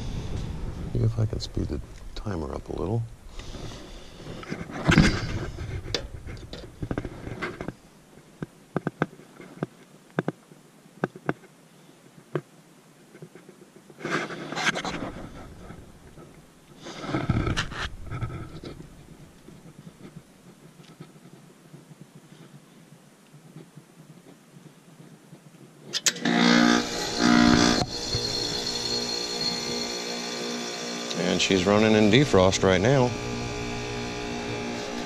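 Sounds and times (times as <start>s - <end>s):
rustling and scraping: 0.0s - 10.4s, 11.0s - 26.0s
sharp clicks and taps: 8.4s - 10.4s.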